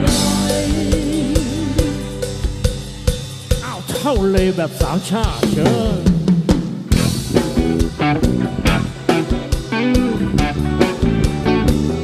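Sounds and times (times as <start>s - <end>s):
electric guitar notes: 0.0s - 4.3s, 6.9s - 12.0s
drum kit snare and kick hits: 0.0s - 12.0s.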